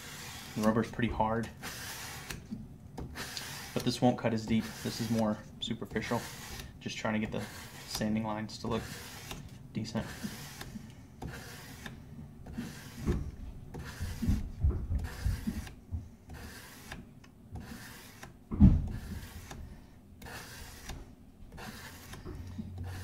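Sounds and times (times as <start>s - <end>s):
sandpaper rubbing on steel: 0.0s - 0.9s, 1.5s - 2.4s, 3.2s - 11.9s, 12.5s - 13.1s, 13.7s - 14.4s, 15.0s - 15.7s, 16.3s - 17.0s, 17.6s - 18.3s, 18.9s - 23.0s.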